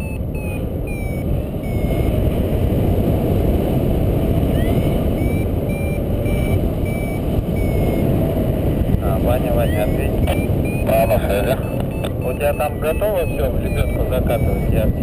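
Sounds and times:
variometer beeping: 0.0 - 2.4, 4.4 - 15.0
wind rumble on microphone: 0.0 - 15.0.

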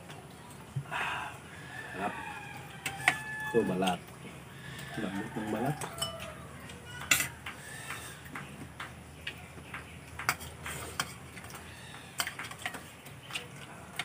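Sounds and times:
spoons tapping plates: 2.7 - 4.1, 4.7 - 14.0.

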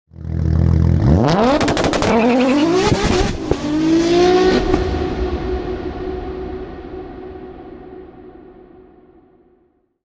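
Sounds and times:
car engine revving: 0.1 - 6.6.

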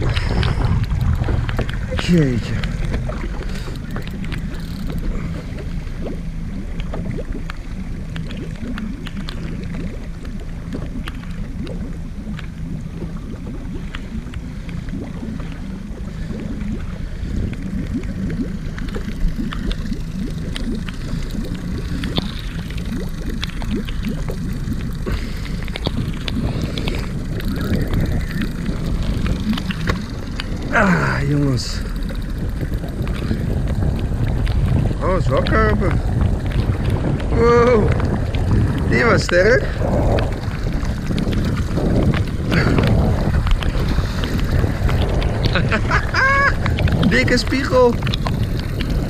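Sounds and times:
steady low hum: 0.0 - 49.0
wind and open water rumble: 0.0 - 49.0.

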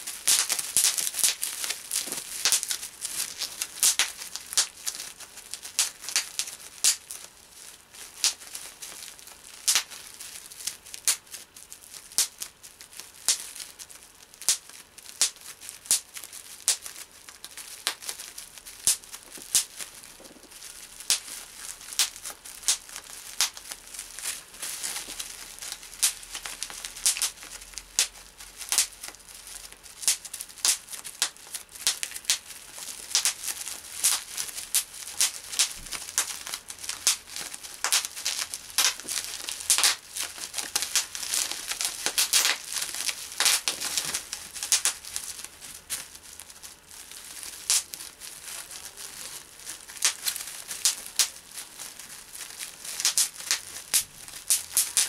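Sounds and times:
bubble wrap popping: 0.0 - 55.0
plastic sheet crinkling: 0.0 - 55.0.

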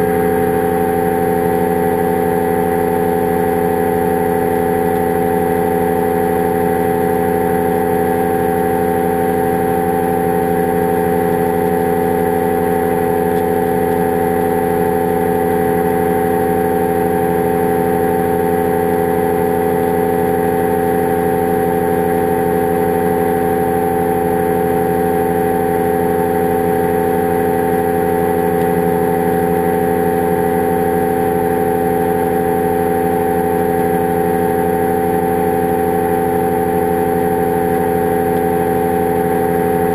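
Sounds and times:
engine and propeller droning: 0.0 - 39.9.

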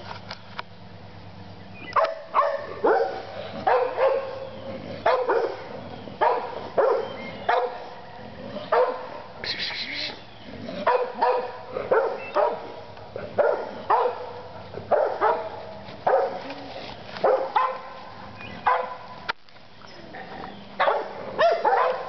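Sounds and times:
dog barking: 2.0 - 4.4, 5.0 - 8.0, 8.6 - 9.4, 10.8 - 16.5, 17.2 - 19.1, 20.8 - 22.0.

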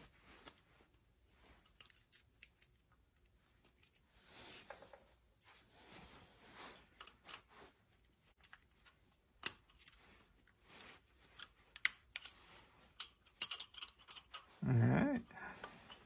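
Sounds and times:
metal pick clicking and scraping: 1.6 - 4.0, 11.3 - 14.6
short low vocal sound: 14.6 - 15.6.

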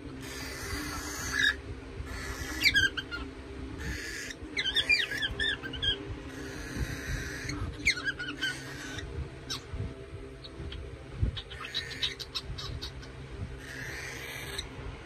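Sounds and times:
cockatiel chirping: 0.2 - 9.6, 10.4 - 14.6.

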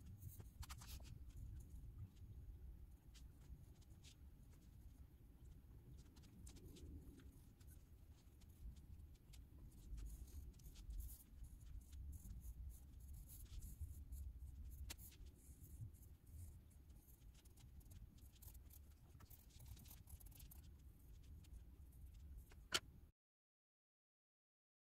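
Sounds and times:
pencil scratching on paper: 0.2 - 1.4, 5.9 - 22.8.

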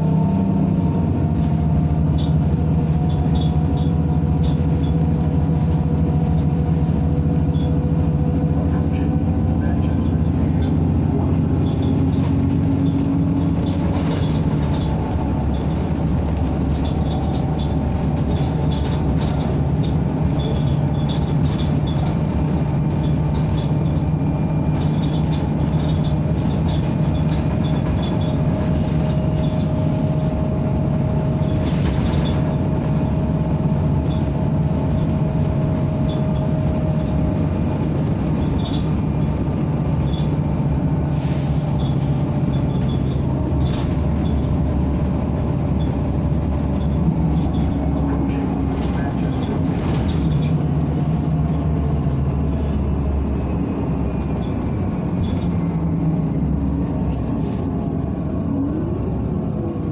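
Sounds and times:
bus engine drone: 0.0 - 59.9
road rumble: 0.0 - 59.9
light rattles: 1.3 - 29.9.

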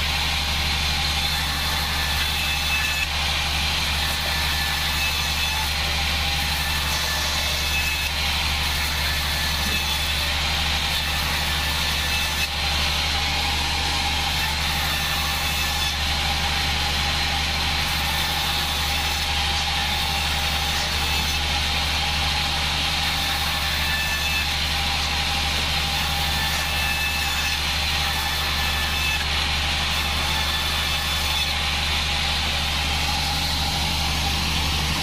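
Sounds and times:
band sawmill running: 0.0 - 35.0.

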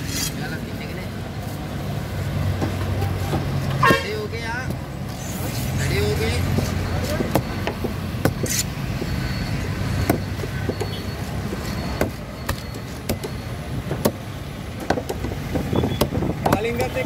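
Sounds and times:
low traffic rumble: 0.0 - 17.0.

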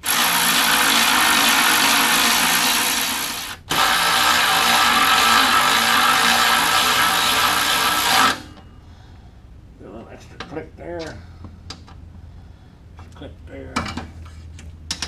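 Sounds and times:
power drill driving bolts: 0.0 - 8.6.

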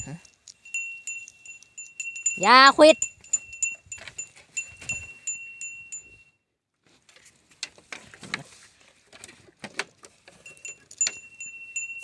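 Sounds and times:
metal chime ringing: 0.0 - 6.3, 10.4 - 12.0
rustling: 6.8 - 12.0.

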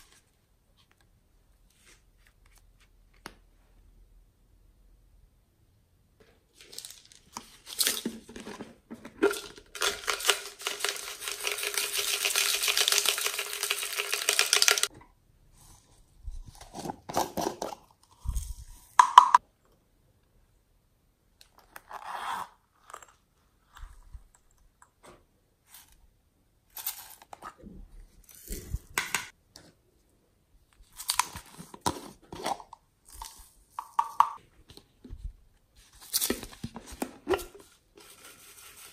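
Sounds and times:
glitter rattling in plastic containers: 6.6 - 14.9.

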